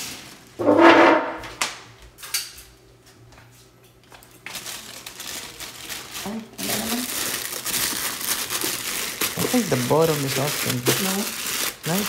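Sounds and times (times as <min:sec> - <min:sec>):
plastic wrapping crinkling: 0:04.2 - 0:12.0.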